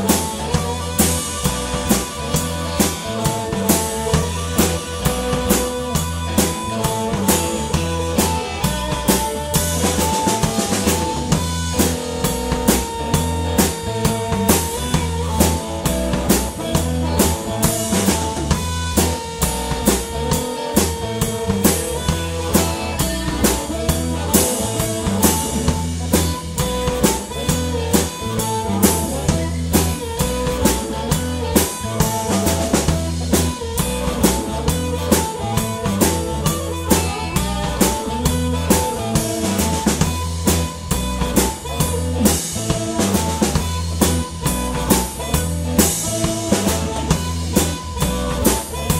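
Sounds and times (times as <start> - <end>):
amplified harmonica wailing: 0.0 - 48.9
blues-rock band playing: 0.0 - 48.9.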